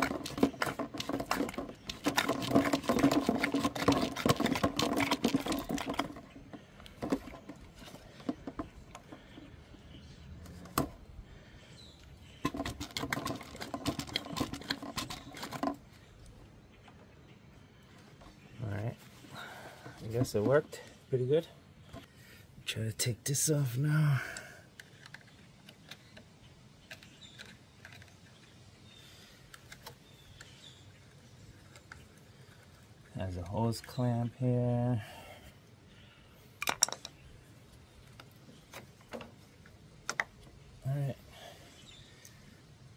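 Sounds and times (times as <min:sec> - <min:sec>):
hand tool clicking and squeaking: 0:12.0 - 0:15.8.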